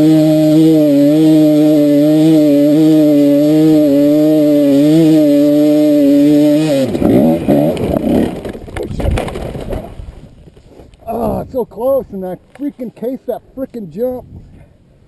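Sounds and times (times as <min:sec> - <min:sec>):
motorbike engine revving high: 0:00.0 - 0:08.4
knocks of bike falling: 0:06.9 - 0:10.7.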